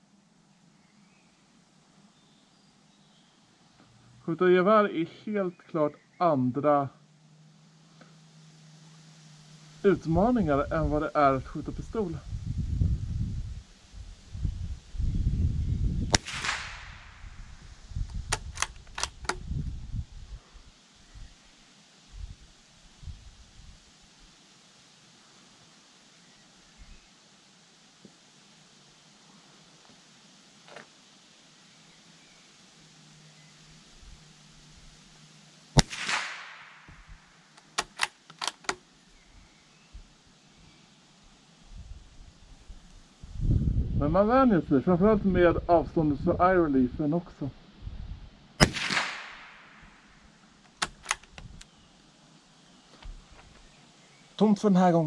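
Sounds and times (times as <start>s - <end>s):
rifle shot: 16.1s - 17.2s, 35.8s - 37.2s, 48.6s - 50.1s
rifle bolt clicks: 18.1s - 19.4s, 37.6s - 38.8s, 50.7s - 51.7s.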